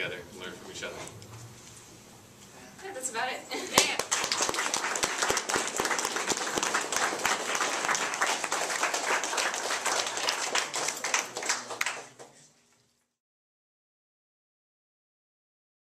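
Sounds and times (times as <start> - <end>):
crowd applauding: 3.8 - 12.4.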